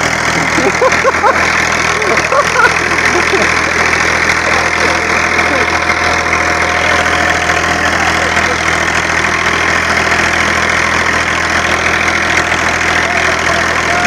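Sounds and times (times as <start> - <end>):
tractor diesel engine under load: 0.0 - 14.0.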